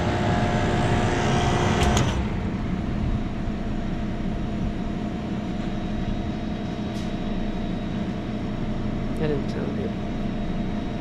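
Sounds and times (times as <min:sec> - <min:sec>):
low rumble: 0:00.0 - 0:07.4
compressor hum: 0:00.0 - 0:11.0.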